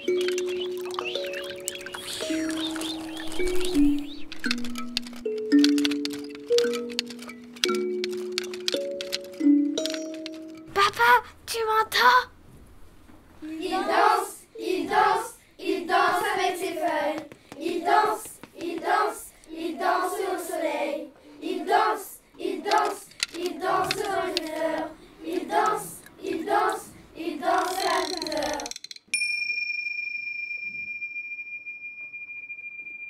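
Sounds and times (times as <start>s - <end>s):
children singing: 13.4s - 28.7s.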